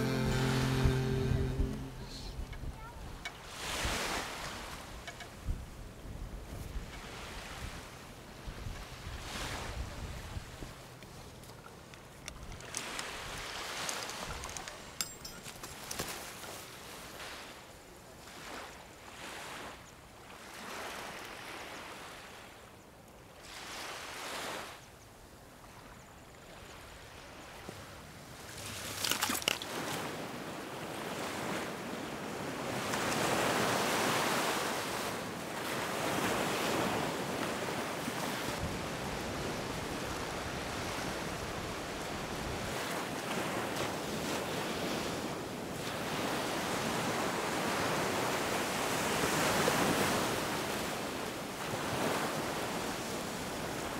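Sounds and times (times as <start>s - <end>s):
surf breaking on beach: 0.0s - 2.4s
wind on microphone: 0.0s - 10.8s.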